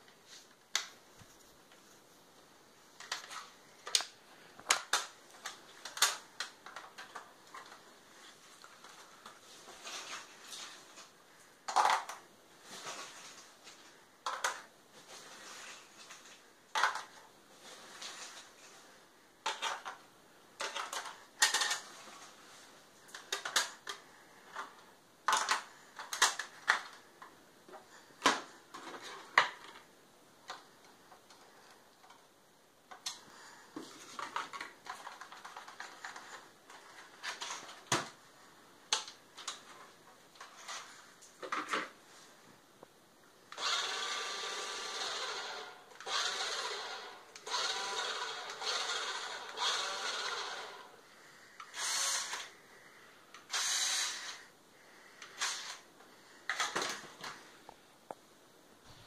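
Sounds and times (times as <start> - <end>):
plastic clicks and rattles: 3.0 - 7.8, 11.0 - 12.2, 14.2 - 14.7, 16.0 - 17.3, 19.4 - 22.0, 23.1 - 32.3, 33.8 - 38.2, 38.9 - 41.9
small electric motor whirring: 43.6 - 51.0, 51.7 - 52.5, 53.5 - 54.4.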